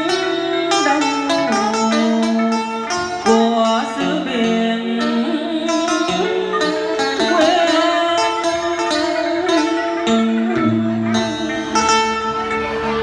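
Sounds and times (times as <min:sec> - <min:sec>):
chord and bass backing: 0:00.0 - 0:13.0
plucked string melody: 0:00.0 - 0:13.0
man singing: 0:03.3 - 0:06.6.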